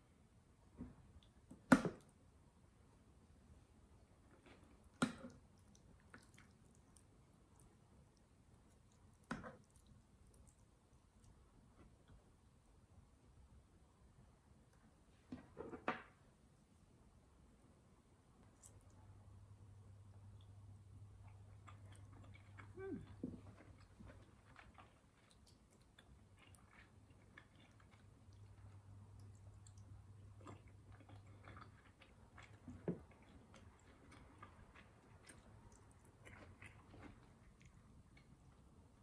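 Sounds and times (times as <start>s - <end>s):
low steady hum: 0.0s - 39.0s.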